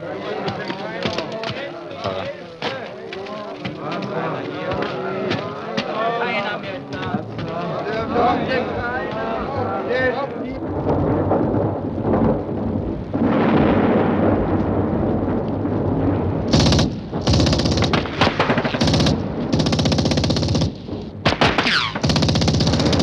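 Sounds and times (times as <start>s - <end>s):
low battle rumble: 8.6s - 23.0s
machine-gun fire bursts: 16.5s - 23.0s.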